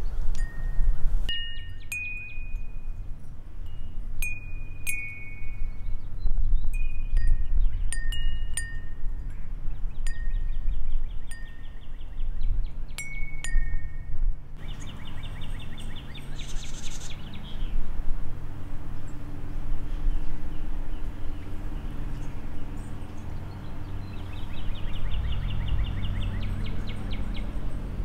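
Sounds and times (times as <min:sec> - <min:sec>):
wind chime ringing: 0:00.4 - 0:05.8, 0:06.8 - 0:09.4, 0:13.0 - 0:14.2
birds trilling: 0:14.6 - 0:17.8, 0:19.0 - 0:28.0.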